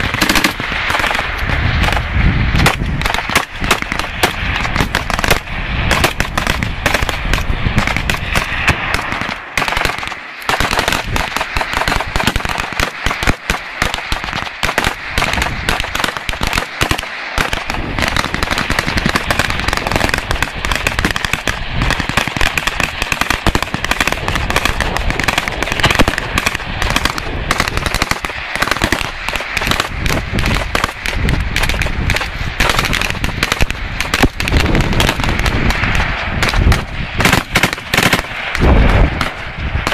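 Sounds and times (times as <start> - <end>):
rifles firing shots and bursts: 0.0 - 39.9.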